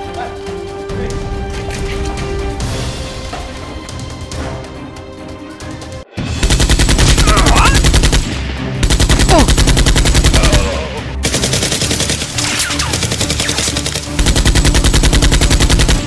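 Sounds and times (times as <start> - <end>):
machine gun firing: 6.2 - 16.0.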